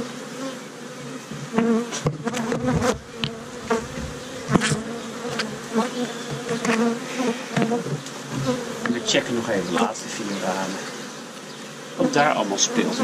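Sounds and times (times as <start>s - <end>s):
bees buzzing: 0.0s - 13.0s
metal hive tool knocking and scraping: 1.4s - 5.6s.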